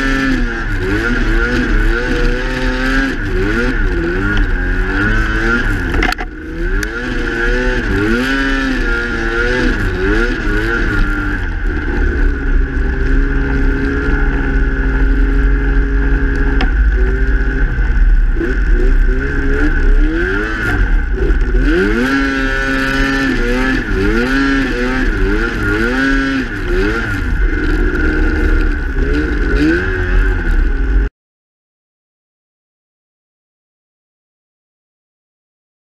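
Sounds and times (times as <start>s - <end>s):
heavy low rumble: 0.0s - 31.1s
snowmobile engine revving: 0.0s - 31.1s
steady high whine: 8.4s - 31.1s.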